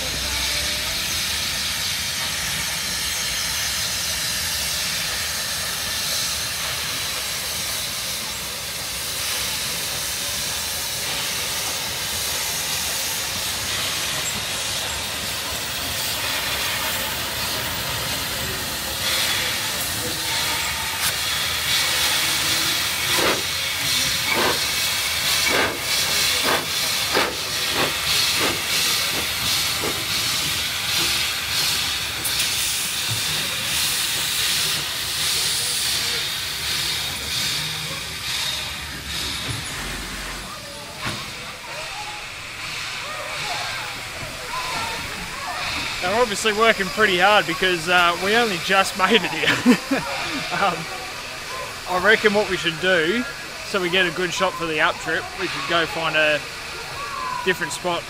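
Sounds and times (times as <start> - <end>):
steam hissing: 0.0 - 58.0
steam train exhaust chuffs: 0.0 - 58.0.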